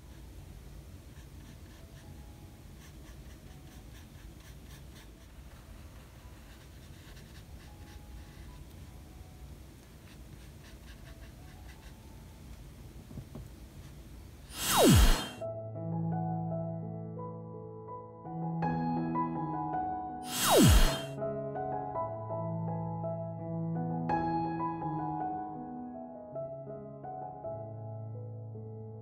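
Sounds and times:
paintbrush brushing on paper: 0:01.0 - 0:08.9, 0:09.8 - 0:12.4, 0:13.7 - 0:15.4.

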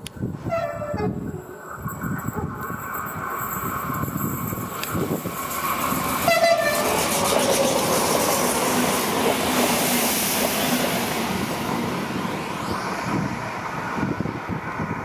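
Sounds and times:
train wheels rushing on rail: 0:00.0 - 0:15.0
clickety-clack of train wheels: 0:01.9 - 0:13.8.

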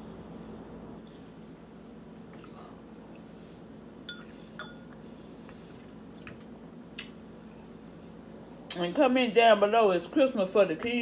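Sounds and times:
fork clinking on ceramic bowls: 0:04.1 - 0:05.0.

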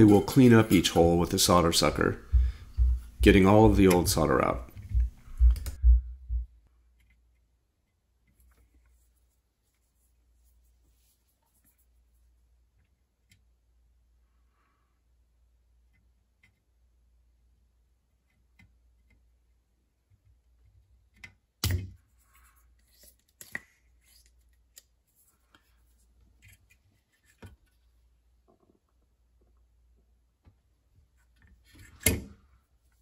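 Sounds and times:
small clicks and taps: 0:03.8 - 0:05.8.

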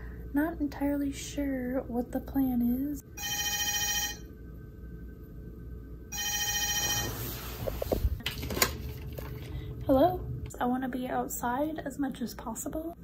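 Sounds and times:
electronic telephone ringing: 0:03.2 - 0:04.3, 0:06.1 - 0:07.5.

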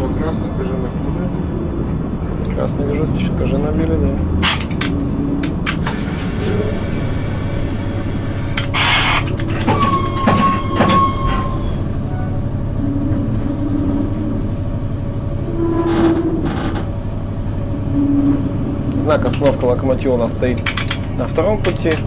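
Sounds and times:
locomotive cab hum: 0:00.0 - 0:22.0
short hiss: 0:07.2 - 0:09.3.

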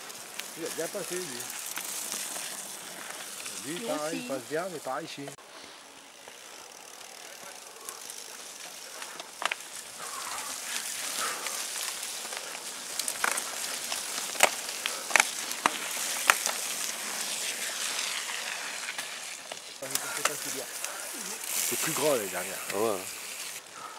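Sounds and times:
tyres hissing through mud and leaves: 0:00.0 - 0:23.9
bike clicks and knocks: 0:09.0 - 0:09.8, 0:12.2 - 0:16.6.

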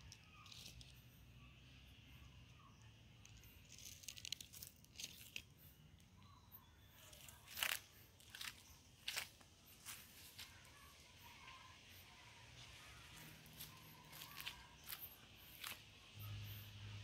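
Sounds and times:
footsteps crunching on dry leaves: 0:07.2 - 0:10.7, 0:12.9 - 0:15.8.

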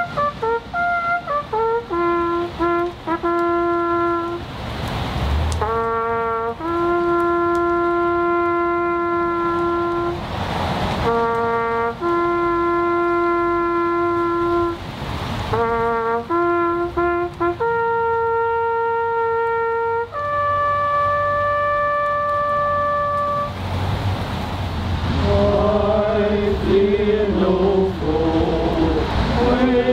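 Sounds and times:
brass horn playing a ceremonial call: 0:00.0 - 0:04.5, 0:05.6 - 0:10.3, 0:11.0 - 0:14.9, 0:15.5 - 0:23.6.

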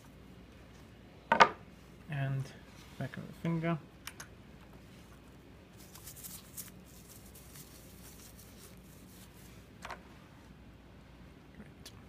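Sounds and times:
tissue wipe scratchy rustles: 0:04.8 - 0:10.5.

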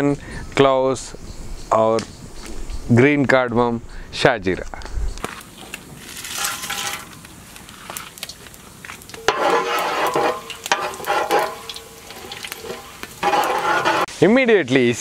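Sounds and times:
spices sizzling in hot oil: 0:05.2 - 0:15.0
metal ladle scraping pot: 0:06.0 - 0:07.3, 0:09.2 - 0:14.1.

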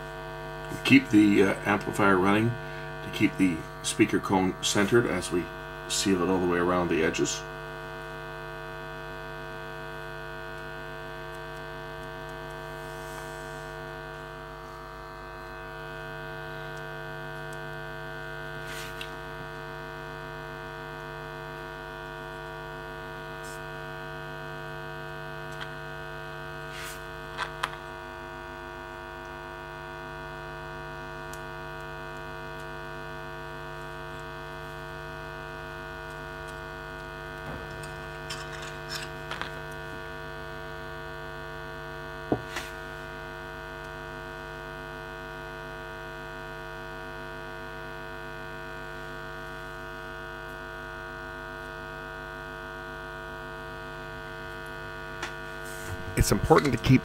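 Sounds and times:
speaker low tone: 0:55.7 - 0:57.0.

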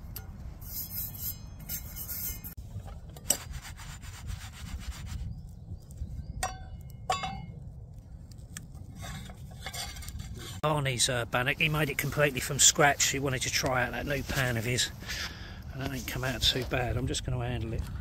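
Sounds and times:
frying pan scraping on grill: 0:00.6 - 0:02.6, 0:08.8 - 0:10.6.

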